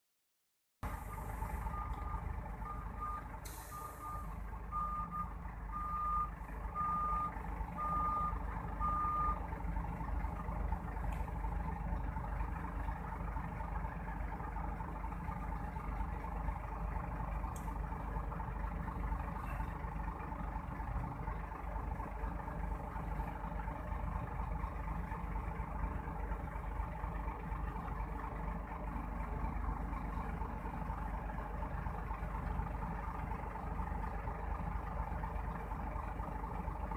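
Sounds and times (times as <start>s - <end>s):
truck reversing alarm beeping: 0.8s - 9.6s
diesel engines rumbling: 0.8s - 36.9s.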